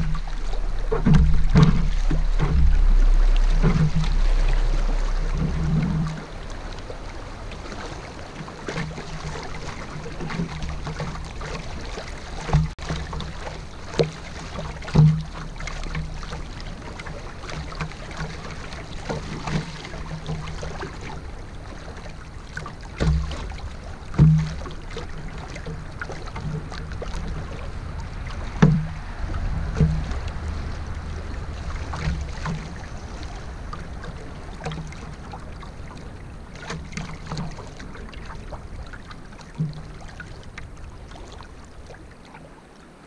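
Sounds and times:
low rumble: 0.0 - 8.3, 26.7 - 36.2
moving river water: 0.0 - 43.0
paddle knocks and splashes: 0.0 - 43.0.

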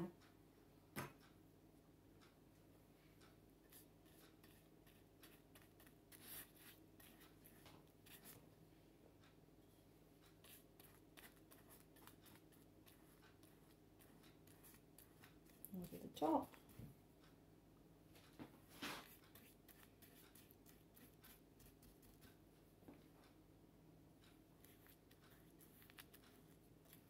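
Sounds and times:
faint steady hum: 0.0 - 27.0
paintbrush brushing on pot: 3.7 - 8.4, 10.3 - 16.8, 18.8 - 22.4, 24.6 - 27.0.

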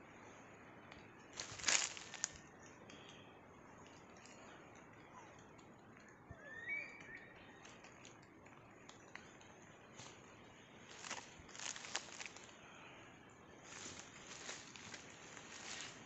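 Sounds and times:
faint forest ambience: 0.0 - 16.0
nylon hammock rustling: 1.3 - 2.4, 9.9 - 12.6, 13.6 - 16.0.

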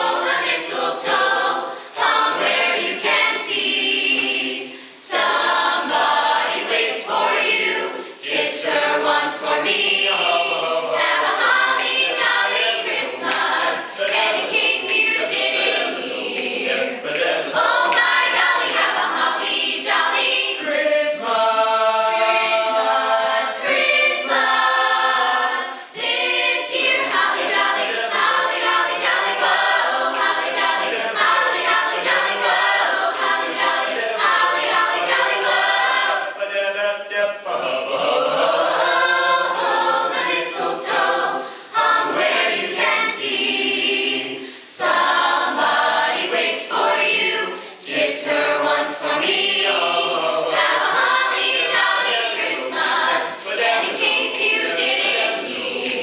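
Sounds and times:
youth choir singing: 0.0 - 56.0.

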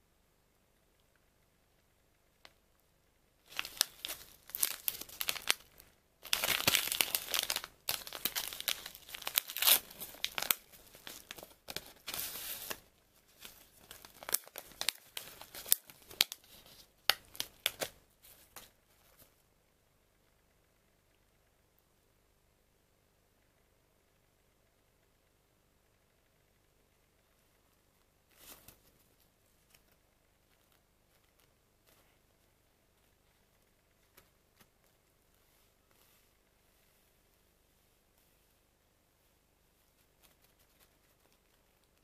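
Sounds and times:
paper sachet tearing and crinkling: 3.5 - 12.8, 13.4 - 16.5.

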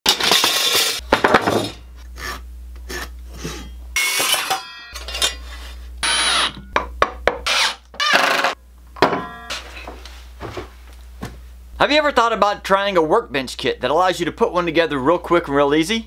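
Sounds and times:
circular saw cutting wood: 6.0 - 6.6.

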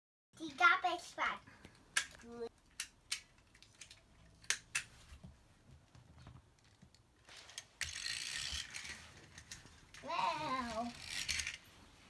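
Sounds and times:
plastic toys clacking: 1.6 - 4.9, 6.6 - 11.7
rustling and scraping: 4.8 - 12.0.

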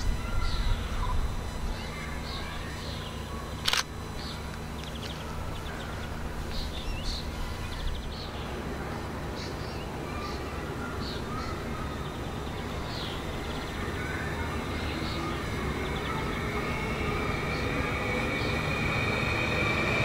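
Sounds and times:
small birds chirping: 0.0 - 20.0
sharp click: 3.6 - 5.2.

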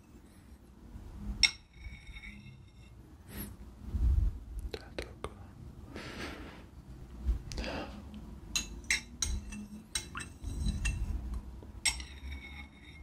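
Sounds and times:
spoon clinking against bowl: 8.5 - 11.1, 11.8 - 13.0.

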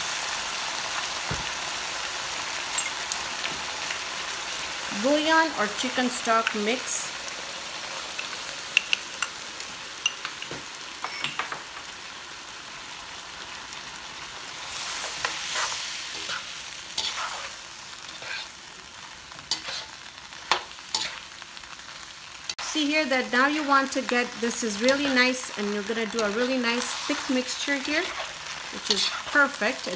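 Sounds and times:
vegetables sizzling in a wok: 0.0 - 29.9
metal spoon scraping a pan: 14.9 - 18.6, 19.4 - 21.3, 24.7 - 25.5, 26.1 - 29.9.

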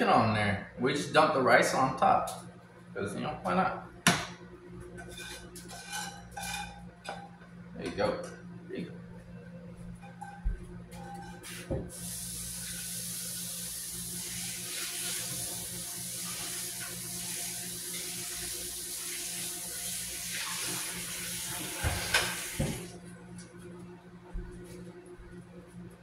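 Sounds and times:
tap water running into sink: 11.6 - 22.9.

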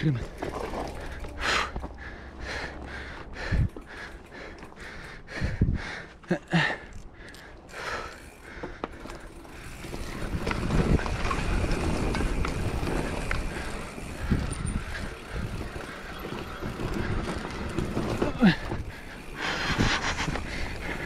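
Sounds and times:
bike clicks and knocks: 0.0 - 2.0, 6.6 - 21.0
bike tyres rumbling on dirt: 0.0 - 4.8, 7.8 - 21.0.

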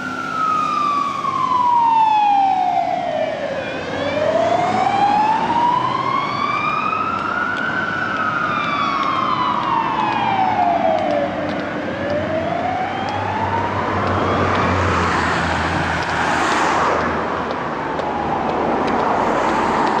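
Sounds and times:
fire engine siren wailing: 0.0 - 20.0
road noise: 0.0 - 20.0
truck diesel engine: 0.0 - 20.0.

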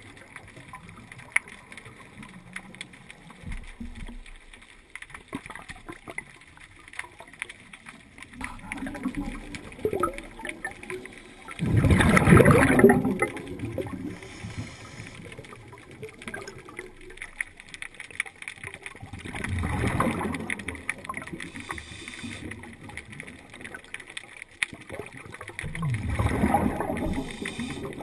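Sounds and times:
small clicks: 0.0 - 11.7, 12.8 - 28.0
exhaled bubbles gurgling underwater: 0.0 - 28.0
faint hiss: 13.7 - 15.8, 21.4 - 22.9, 26.8 - 28.0.

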